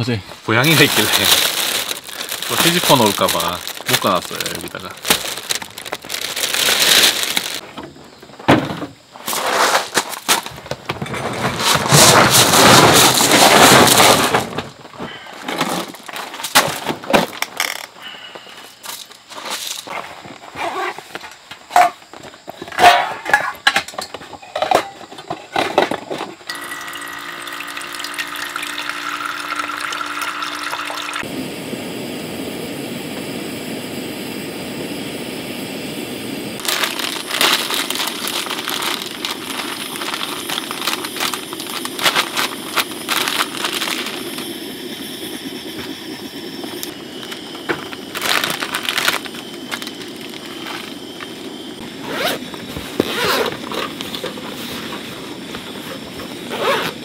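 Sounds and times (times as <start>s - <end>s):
gas stove hissing: 0.0s - 7.6s, 26.5s - 57.0s
pot and packet clicks and rattles: 0.6s - 7.6s, 26.5s - 31.2s, 36.6s - 44.5s, 46.8s - 51.0s
water poured into metal pot: 26.5s - 31.2s.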